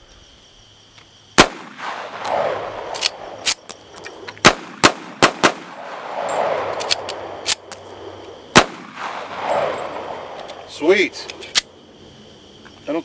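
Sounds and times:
pistol shots with rolling echo: 1.4 - 3.7, 4.4 - 10.8.

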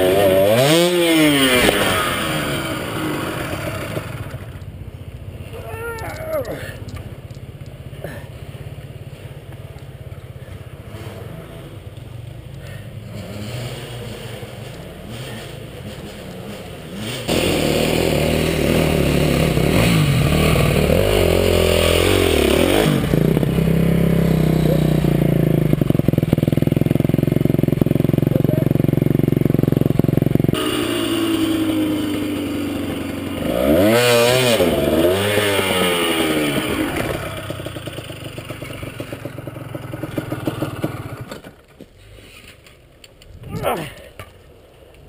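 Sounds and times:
motorcycle engine revving: 0.0 - 4.7, 8.1 - 42.5.

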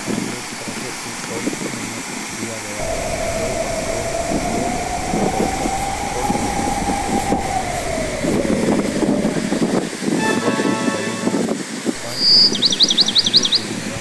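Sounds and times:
long held tone: 10.2 - 12.2.

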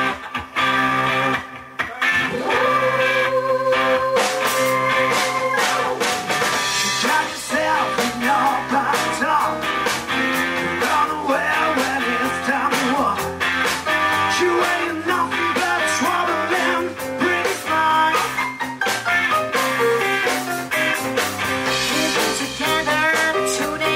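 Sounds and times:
bass guitar: 0.0 - 23.9
drums: 0.0 - 23.9
electric guitars: 0.0 - 23.9
keyboard: 0.0 - 23.9
person singing: 1.8 - 18.5, 21.6 - 23.9.

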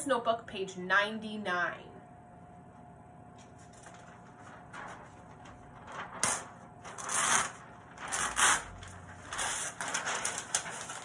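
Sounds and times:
paper sheet crackling and rustling: 3.3 - 11.0.

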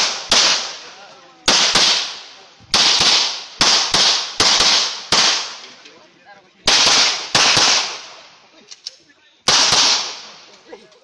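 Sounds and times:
pistol shots echoing: 0.0 - 0.8, 1.5 - 5.6, 6.7 - 8.2, 9.5 - 10.4.

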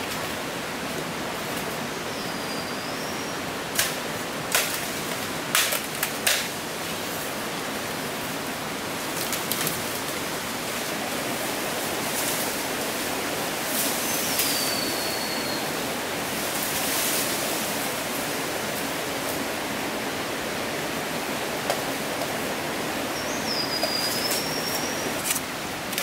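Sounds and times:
stream rushing: 0.0 - 26.0.

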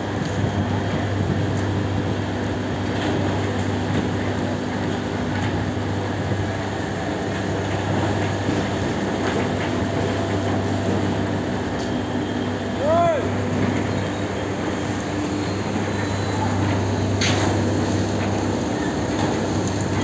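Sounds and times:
heavy machinery humming: 0.0 - 20.0.

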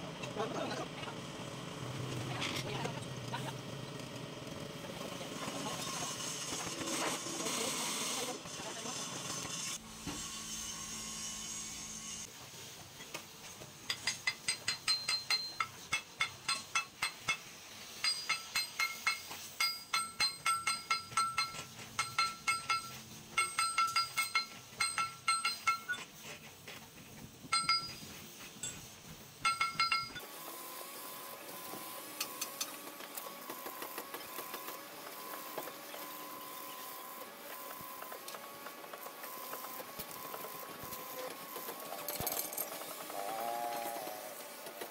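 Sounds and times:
ringing metal strikes: 18.0 - 26.0, 27.5 - 28.8, 29.4 - 30.2.

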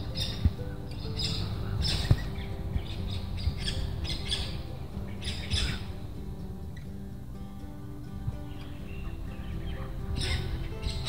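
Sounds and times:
parrots calling: 0.0 - 6.0, 8.5 - 11.0
soft background music: 0.0 - 11.0.

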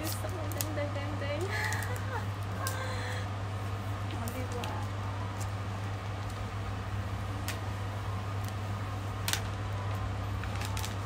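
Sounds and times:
steady low hum: 0.0 - 11.0
plastic wrap clicks and rustles: 9.2 - 11.0.

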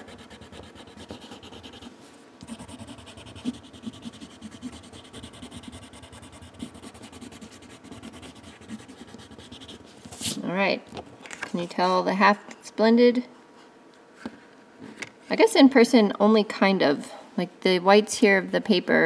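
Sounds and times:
pencil rubbing on paper: 0.0 - 10.4.

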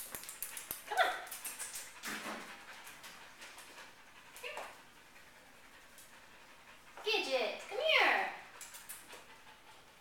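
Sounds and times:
claws clicking on tile floor: 0.0 - 2.1, 8.6 - 9.2.

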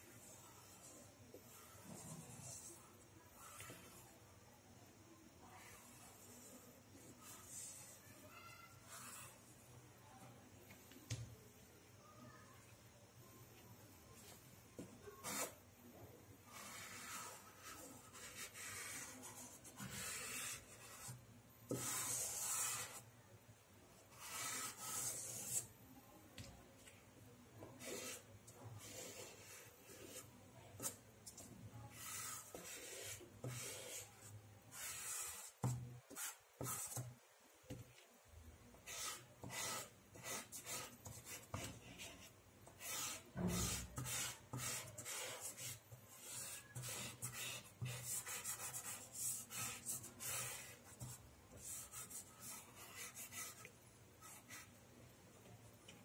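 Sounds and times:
pastel scraping on paper: 15.2 - 15.6, 16.5 - 23.0, 24.1 - 25.7, 27.8 - 37.1, 38.8 - 54.7.

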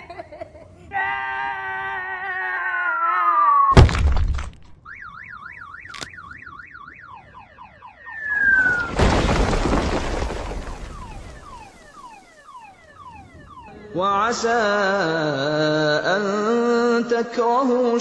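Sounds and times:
cartoon falling wail: 1.0 - 3.8
heavy boulder crash: 3.8 - 4.8, 8.3 - 11.9
warbling alarm-like tone: 4.8 - 9.0, 10.0 - 14.6
falling whistles: 7.8 - 13.8
rumbling rockslide crash: 8.3 - 12.3.

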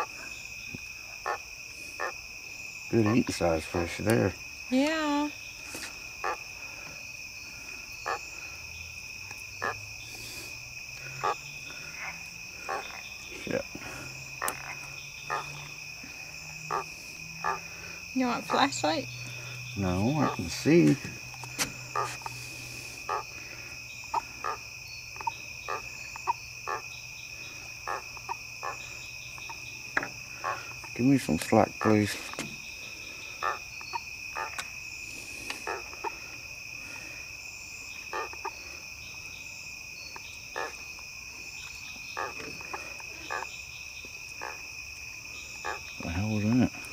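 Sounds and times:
crickets chirping: 0.0 - 46.9
frog croaking: 0.0 - 46.9
catfish squeaking: 16.7 - 17.6, 20.2 - 20.6, 21.9 - 22.2.

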